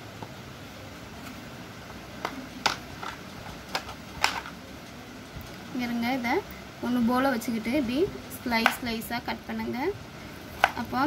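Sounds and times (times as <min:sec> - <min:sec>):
low room hum: 0:00.0 - 0:11.0
potato slices clicking on board: 0:10.6 - 0:10.9.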